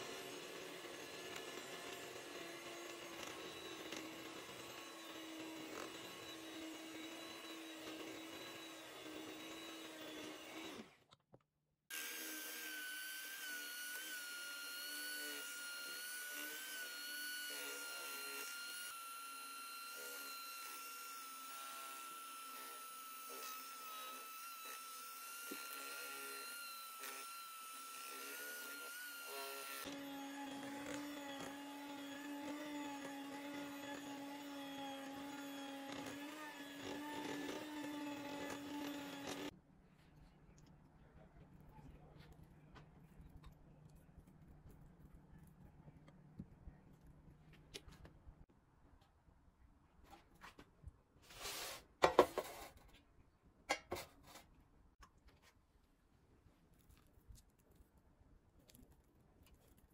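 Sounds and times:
electric hand mixer whining: 0.0 - 11.0, 11.9 - 39.6.

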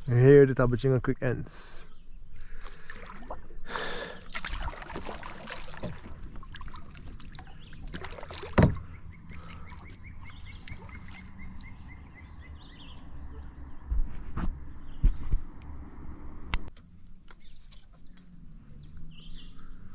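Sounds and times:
water splashing against kayak hull: 2.4 - 13.5.

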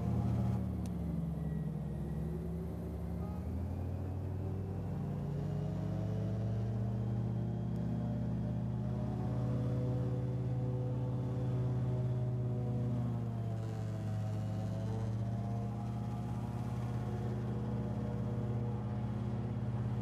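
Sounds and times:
airboat engine running: 7.0 - 20.0.

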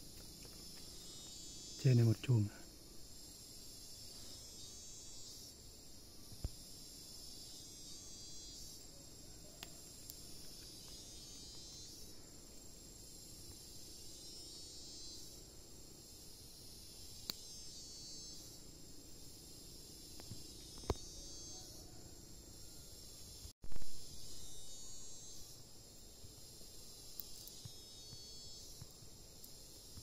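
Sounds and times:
high-pitched insect chorus: 0.0 - 30.0.

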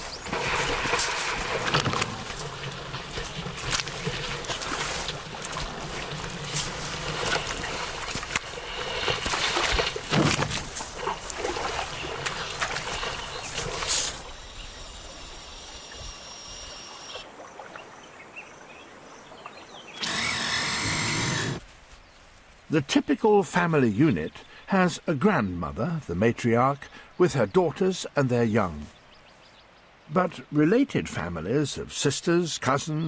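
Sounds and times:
elephants splashing in mud: 0.0 - 14.3
high buzz of insects: 11.0 - 19.2, 19.9 - 21.7.

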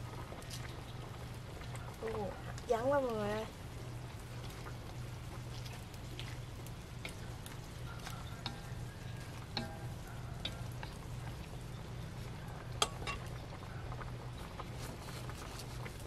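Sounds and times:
soup simmering: 0.0 - 16.0
chopsticks knocking against pan: 9.5 - 10.9.

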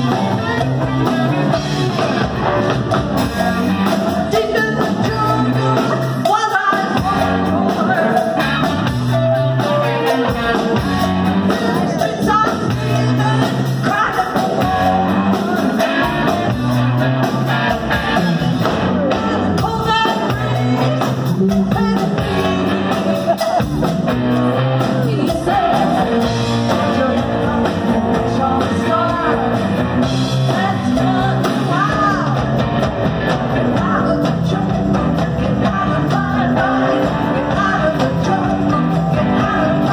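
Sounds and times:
person singing lead vocal: 0.0 - 16.5, 18.6 - 32.9, 33.5 - 39.9
bass guitar: 0.0 - 39.9
drum kit: 0.0 - 39.9
electric guitar: 0.0 - 39.9.

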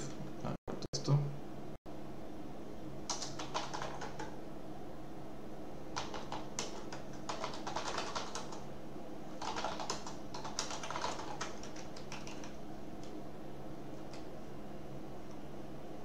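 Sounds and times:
typing on a computer keyboard: 3.1 - 4.4, 6.0 - 8.6, 9.4 - 13.2, 14.0 - 14.3.

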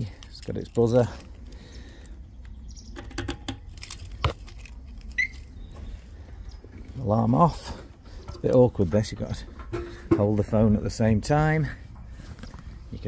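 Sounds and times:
keys jangling: 3.7 - 5.4.

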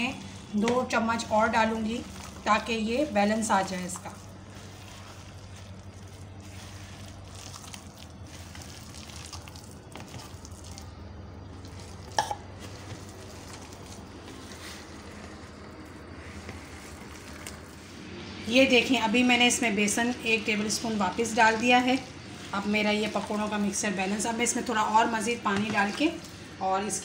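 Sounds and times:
steady low hum: 0.0 - 27.0
hand squelching wet batter: 0.1 - 18.0.

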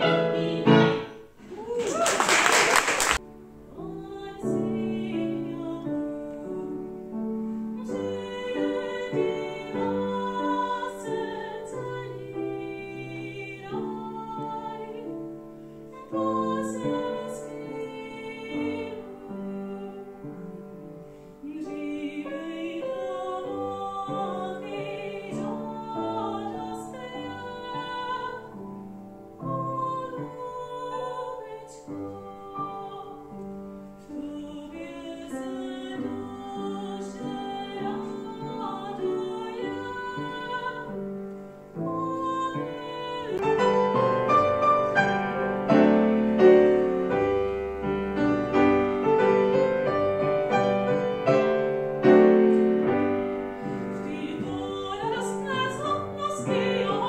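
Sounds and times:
grand piano: 0.0 - 57.0
woman singing operatically: 3.7 - 6.7, 7.8 - 15.2, 15.9 - 20.6, 21.4 - 28.6, 29.4 - 33.3, 34.1 - 41.0, 41.8 - 45.1, 53.9 - 57.0.

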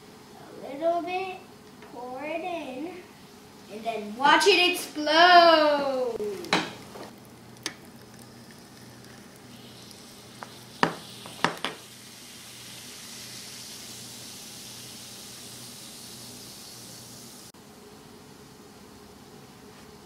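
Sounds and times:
fizzing hiss of bubbles: 7.3 - 17.5.

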